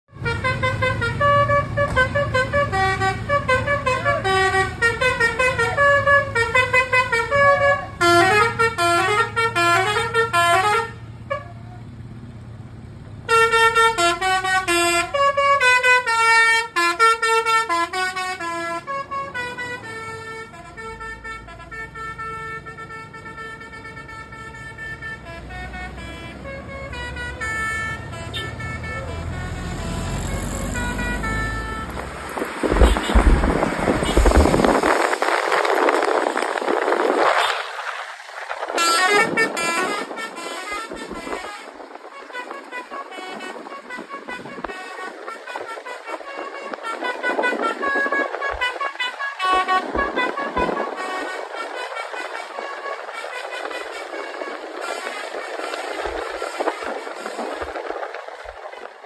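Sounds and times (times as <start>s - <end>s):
multi-tone air horn tune: 0.1s - 11.6s, 13.3s - 58.8s
bus engine hum: 0.1s - 59.0s.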